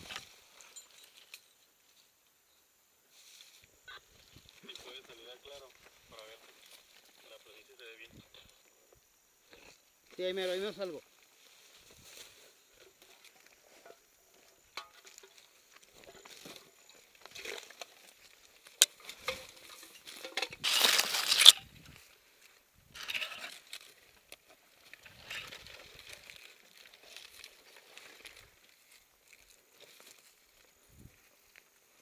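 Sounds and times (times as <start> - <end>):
dry brush and grass rustling: 0.0 - 2.3, 3.0 - 32.0.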